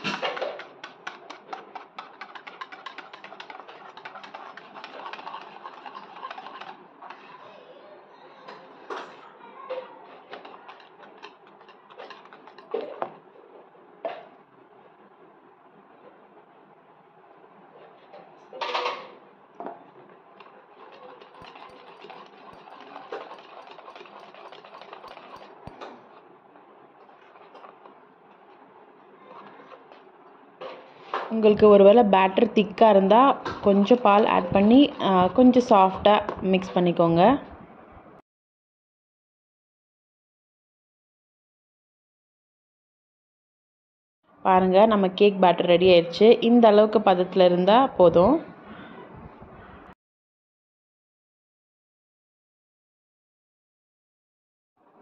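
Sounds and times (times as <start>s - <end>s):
utensil clicking against bowl: 0.0s - 7.2s, 20.4s - 26.0s
utensil scraping bowl: 0.0s - 7.7s, 10.0s - 13.2s, 20.4s - 26.3s, 26.9s - 31.3s, 32.7s - 36.9s.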